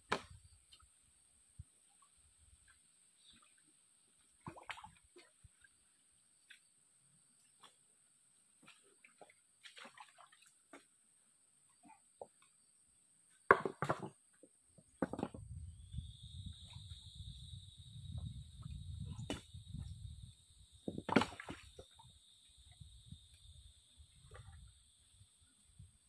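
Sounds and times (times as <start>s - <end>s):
stones knocking together: 15.0s - 15.4s.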